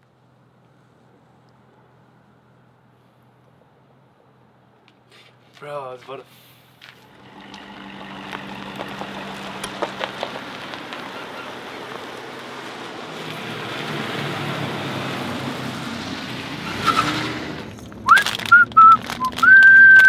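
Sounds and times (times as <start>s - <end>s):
truck engine hum: 6.4s - 20.0s
wash of noise: 7.0s - 17.6s
short rising whistle: 16.7s - 17.2s, 18.1s - 20.0s.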